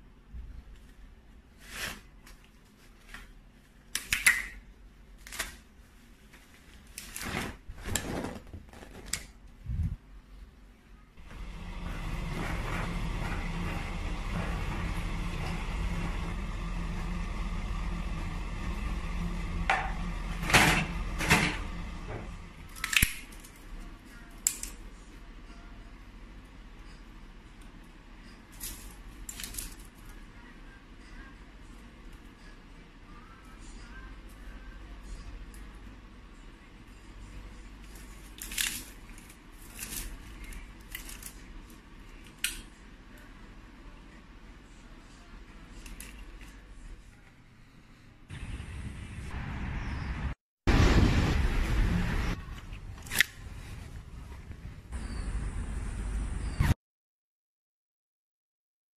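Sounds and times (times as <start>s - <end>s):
low background hum: 0.0s - 56.7s
small objects clicking and rustling: 28.5s - 30.2s, 37.9s - 42.6s.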